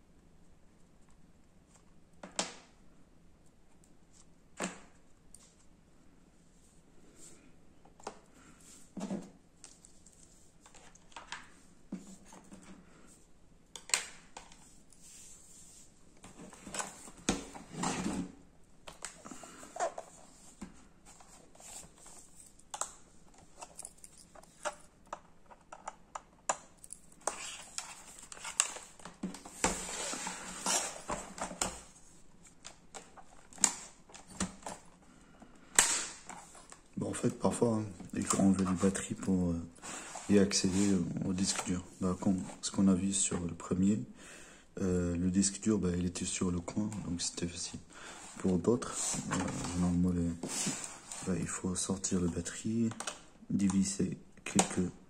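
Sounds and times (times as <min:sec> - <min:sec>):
hands handling plastic casings: 0:21.6 - 0:29.2.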